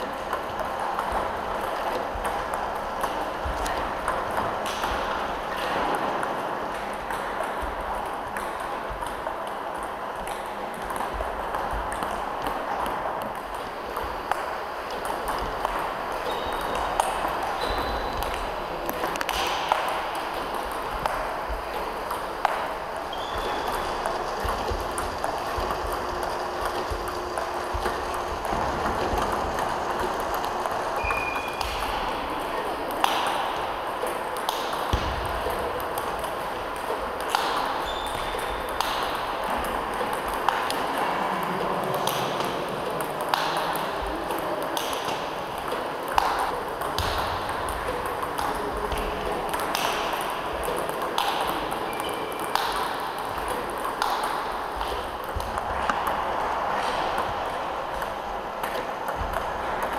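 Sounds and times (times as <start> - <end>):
table tennis balls clicking: 0.0 - 59.9.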